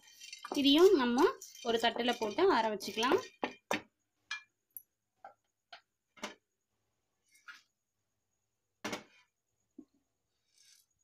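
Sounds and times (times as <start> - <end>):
utensils clicking and tapping: 0.0 - 4.4.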